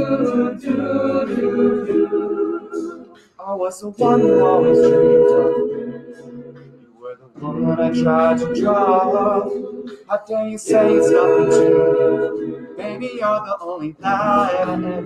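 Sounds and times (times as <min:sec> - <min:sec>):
a cappella group singing: 0:00.0 - 0:15.0.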